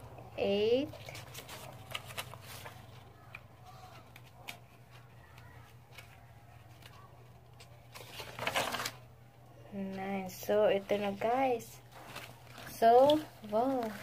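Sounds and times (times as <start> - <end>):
low steady hum: 0.0 - 14.0
paper pages turning: 0.9 - 9.1, 10.8 - 14.0.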